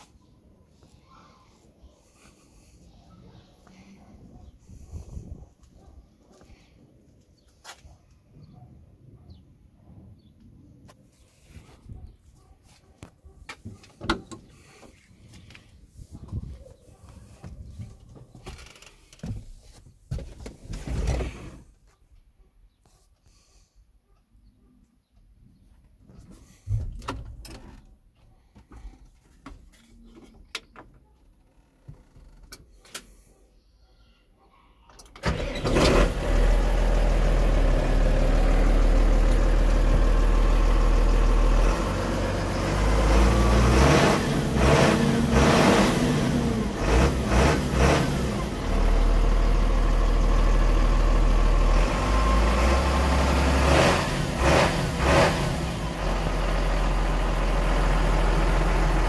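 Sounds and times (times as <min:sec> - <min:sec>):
clicks and knocks in tractor cab: 0:17.4 - 0:21.4, 0:26.1 - 0:27.9
tractor diesel engine revving: 0:35.2 - 0:59.0.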